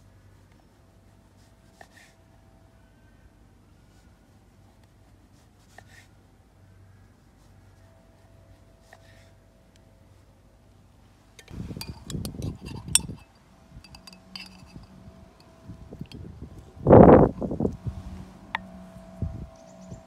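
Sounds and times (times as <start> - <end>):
metal spork clinking on glass jar: 11.4 - 16.2.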